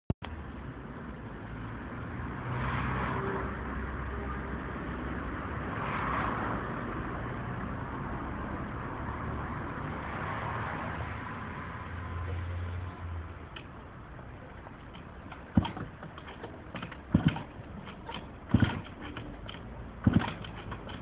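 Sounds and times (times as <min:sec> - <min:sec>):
motor scooter engine starting: 0:14.9 - 0:21.0.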